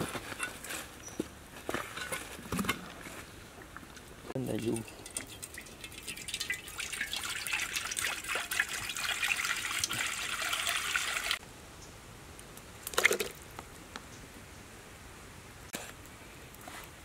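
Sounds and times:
water pouring into wok: 0:04.6 - 0:11.4.

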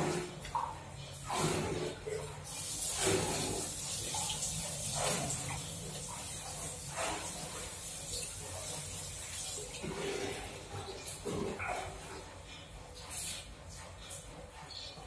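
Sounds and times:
tap water running into basin: 0:00.0 - 0:11.3.

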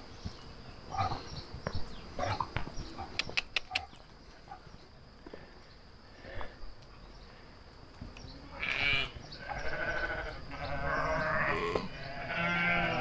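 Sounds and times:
sheep and lambs bleating: 0:08.4 - 0:13.0.

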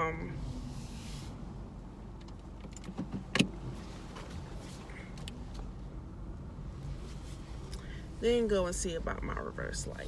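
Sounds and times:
car engine and road hum: 0:00.0 - 0:10.0.

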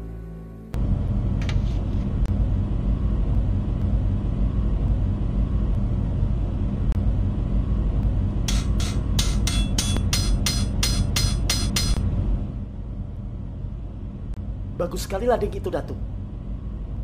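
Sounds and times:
soft music: 0:00.0 - 0:00.8
forge fire rumbling: 0:00.8 - 0:09.2.

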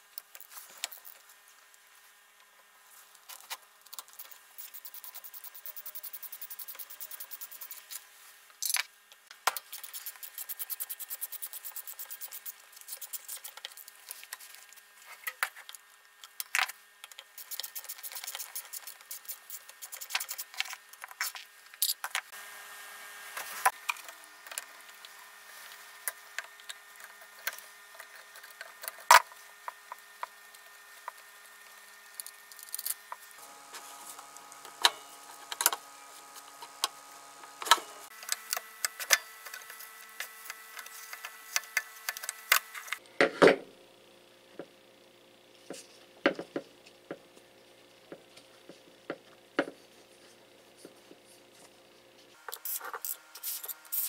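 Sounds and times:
faint steady hum: 0:00.0 - 0:54.0
small metal clicks and scrapes: 0:00.2 - 0:01.3, 0:03.2 - 0:08.0, 0:08.6 - 0:08.9, 0:09.5 - 0:22.3, 0:23.7 - 0:31.2, 0:32.1 - 0:33.2, 0:37.6 - 0:43.0, 0:52.4 - 0:54.0.

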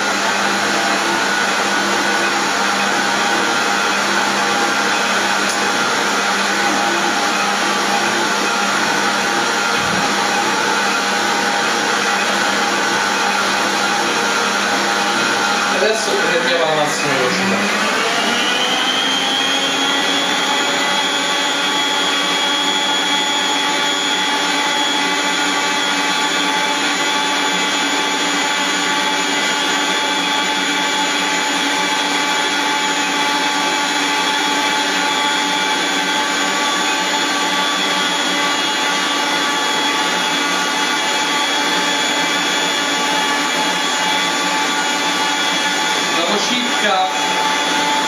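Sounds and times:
stand mixer motor whine: 0:00.0 - 0:48.0.

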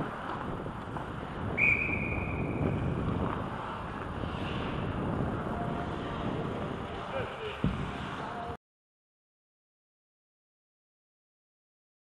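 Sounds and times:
wind noise on microphone: 0:00.0 - 0:08.6
referee whistle blast: 0:01.6 - 0:02.6.

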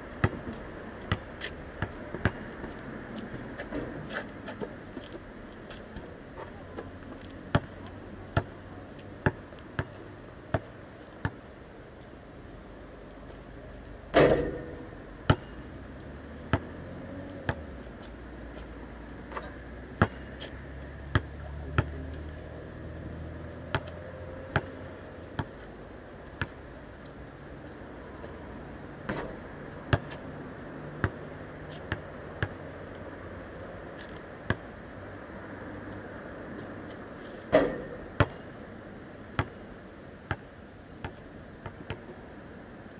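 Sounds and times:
basketball bouncing on asphalt: 0:00.2 - 0:03.4, 0:07.5 - 0:08.6, 0:09.2 - 0:11.4, 0:14.1 - 0:15.6, 0:16.5 - 0:16.7, 0:17.5 - 0:17.7, 0:20.0 - 0:22.0, 0:23.7 - 0:24.8, 0:25.4 - 0:25.6, 0:29.1 - 0:30.2, 0:31.0 - 0:32.6, 0:34.0 - 0:34.7, 0:37.5 - 0:38.5, 0:39.4 - 0:39.6, 0:40.3 - 0:42.2
ball banging on metal hoop: 0:14.1 - 0:15.5, 0:37.5 - 0:38.4.

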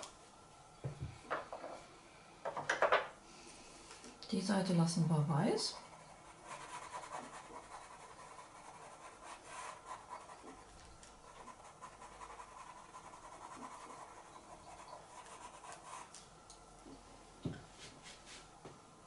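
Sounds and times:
pencil scratching on paper: 0:05.7 - 0:10.7, 0:11.3 - 0:16.1.

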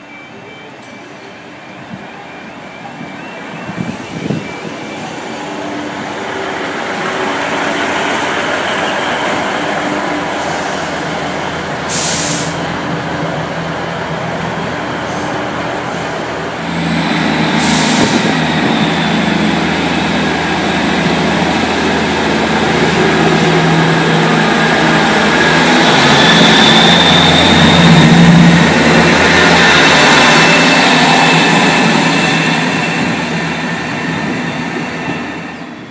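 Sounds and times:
train diesel engines running: 0:00.0 - 0:35.9
air brake hisses: 0:11.9 - 0:12.6, 0:17.5 - 0:18.3.

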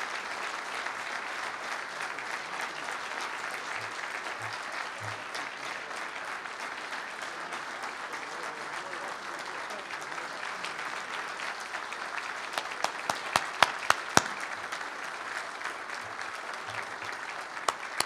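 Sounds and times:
audience applauding: 0:00.0 - 0:18.0
sharp individual claps: 0:02.2 - 0:07.3, 0:10.9 - 0:18.0.

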